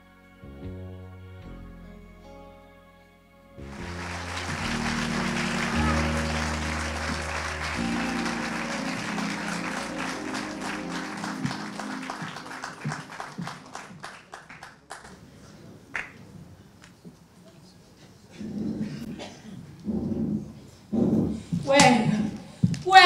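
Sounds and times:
song music: 0:03.6 - 0:14.0
audience applauding: 0:03.6 - 0:15.3.

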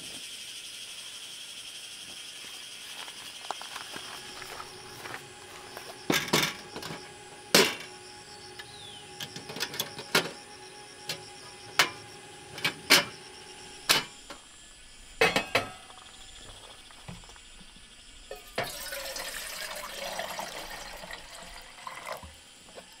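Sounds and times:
steel pot set on grate: 0:11.1 - 0:13.2, 0:15.2 - 0:15.9, 0:18.3 - 0:19.0
metallic clatters of camping stove: 0:15.2 - 0:16.0.

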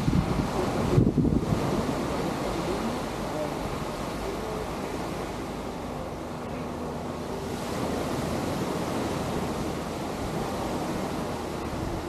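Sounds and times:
waves breaking on beach: 0:00.0 - 0:12.0
wind on microphone: 0:00.0 - 0:12.0.

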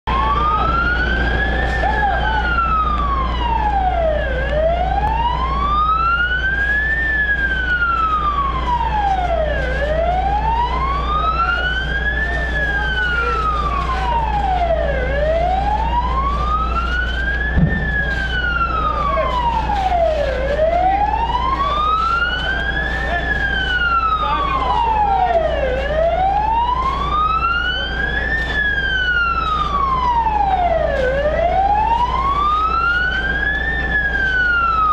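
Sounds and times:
siren wailing: 0:00.0 - 0:34.9
steady low rumble: 0:00.1 - 0:34.9
short knock: 0:17.6 - 0:18.0.

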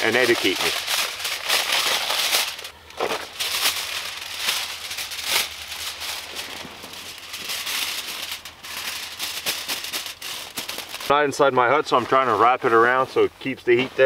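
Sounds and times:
foil and plastic bag crinkling: 0:00.0 - 0:11.2.

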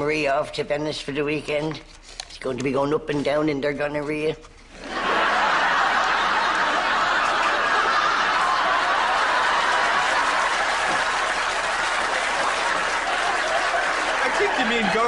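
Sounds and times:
audience laughing: 0:04.8 - 0:15.0
audience applauding: 0:05.1 - 0:15.0.

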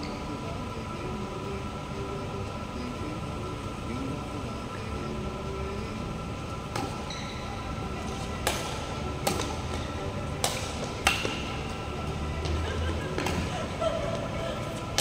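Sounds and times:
low hum: 0:00.0 - 0:15.0
rackets striking shuttlecock: 0:06.7 - 0:07.4, 0:08.1 - 0:13.6.

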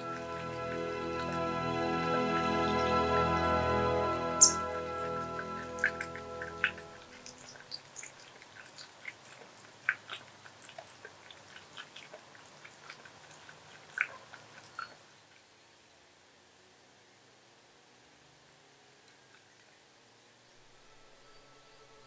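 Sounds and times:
cat chewing crunchy food: 0:06.8 - 0:15.0.

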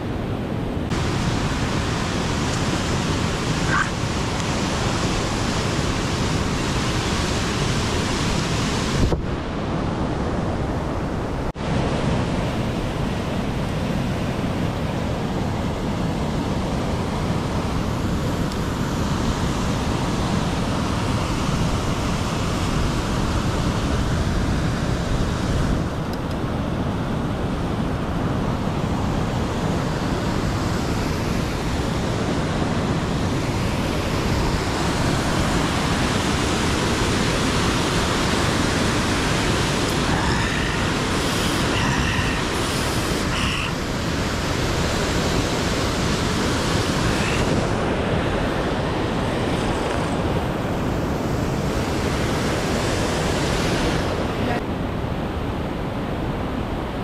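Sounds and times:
waterfall rushing: 0:00.4 - 0:09.1, 0:27.9 - 0:54.6.

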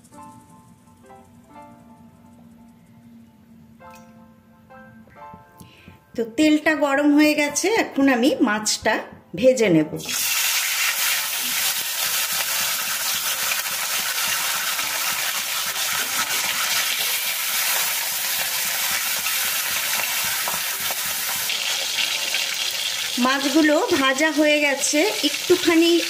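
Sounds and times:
fish frying in oil: 0:10.1 - 0:26.0.

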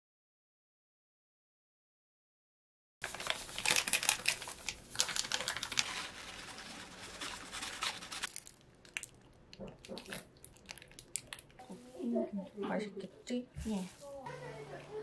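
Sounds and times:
plastic packets crinkling: 0:03.0 - 0:11.6.

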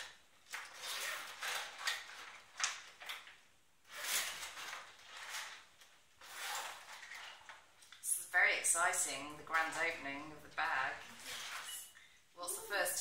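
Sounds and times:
plastic crinkling: 0:00.0 - 0:08.0
plastic bag zip pulled open: 0:00.5 - 0:03.2, 0:03.8 - 0:07.6, 0:11.1 - 0:11.8.

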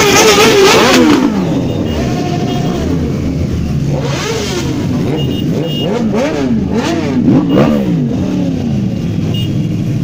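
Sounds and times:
motorcycle engines revving: 0:00.0 - 0:10.0.

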